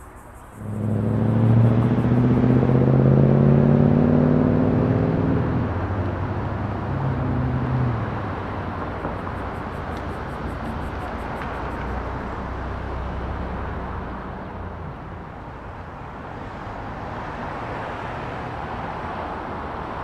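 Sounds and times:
vehicle engine accelerating: 0.0 - 14.1
steady traffic noise: 0.0 - 20.0.

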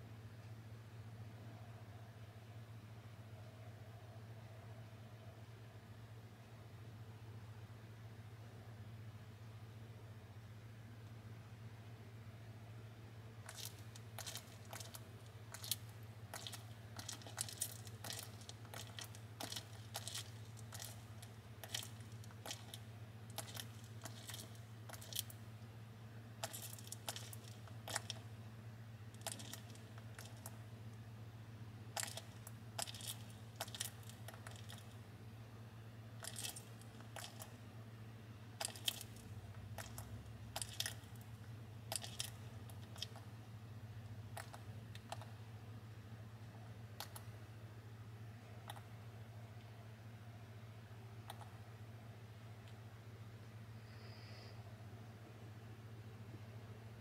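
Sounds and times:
steady low hum: 0.0 - 57.0
lizard chewing crunches: 13.4 - 25.5, 26.4 - 28.4, 29.1 - 30.7, 31.9 - 35.0, 36.2 - 37.6, 38.6 - 43.4, 44.2 - 45.3, 46.9 - 47.4.

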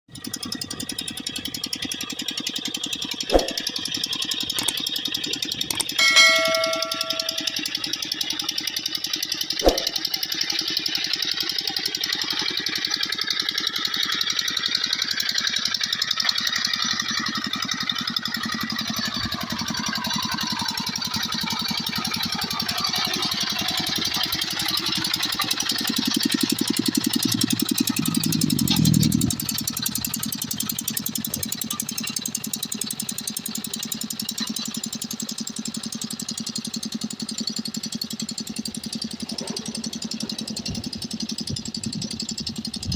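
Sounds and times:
diesel engine chugging: 0.1 - 42.9
sharp click: 3.3 - 3.7, 9.6 - 10.0.

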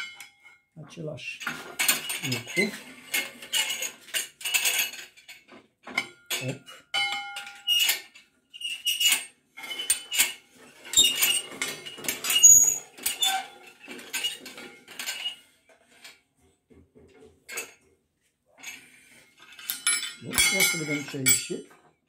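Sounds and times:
steel bar clinking against metal: 19.5 - 21.8.

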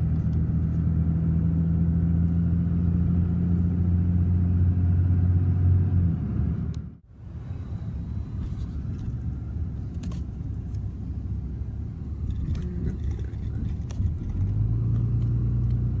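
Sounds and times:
road and engine rumble in a car: 0.0 - 16.0.

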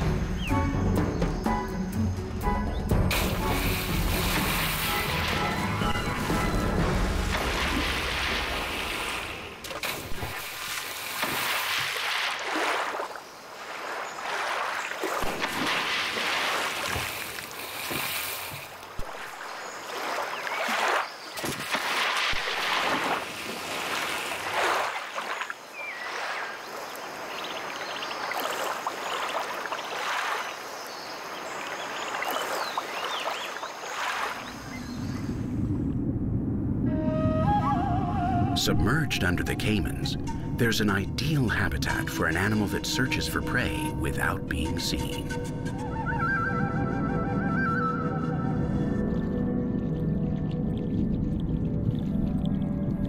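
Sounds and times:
heavy splashes in shallow water: 3.1 - 35.0
muffled underwater rumble: 48.2 - 53.0.

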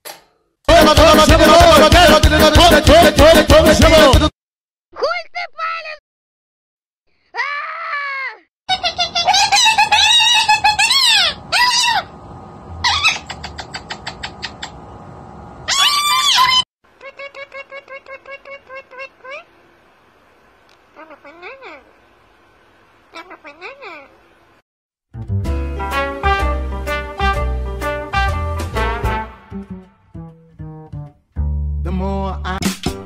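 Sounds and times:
swing music with brass: 0.7 - 4.3, 25.3 - 29.8
parakeet chirping: 8.7 - 12.1, 12.8 - 14.8
parrots screeching: 8.7 - 12.1, 12.8 - 14.8, 15.7 - 16.6.

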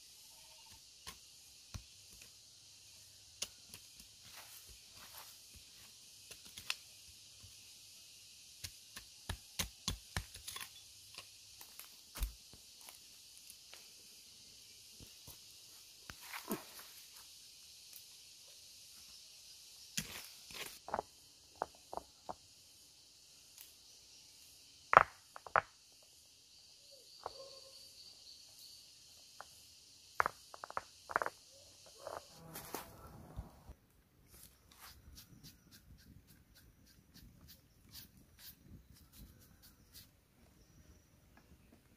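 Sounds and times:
rocks clacking together: 24.9 - 25.8, 30.2 - 31.4.

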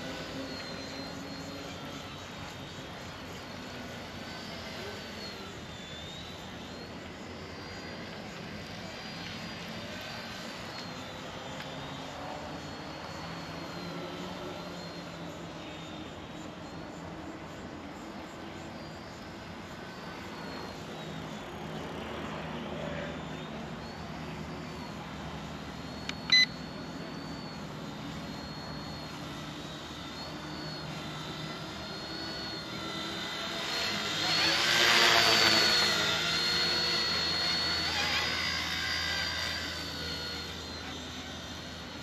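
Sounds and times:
toy helicopter rotors whining: 0.0 - 42.0
short sharp beep: 26.0 - 26.6.

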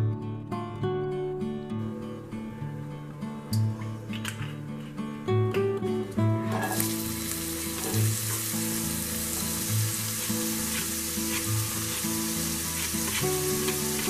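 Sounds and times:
background music: 0.0 - 14.0
onion sizzling in oil: 6.4 - 14.0.

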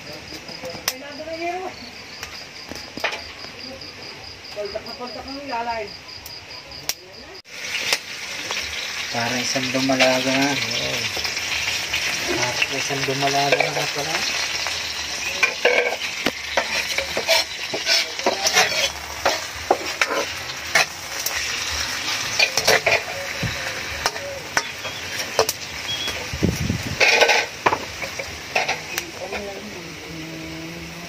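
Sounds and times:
meat sizzling in oil: 7.4 - 31.0
metal spatula scraping a wok: 11.6 - 25.8, 26.8 - 29.6.

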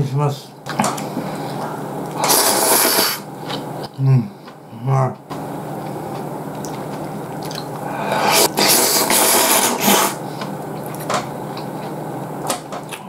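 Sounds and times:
person slurping noodles: 2.2 - 3.3, 7.4 - 10.2.

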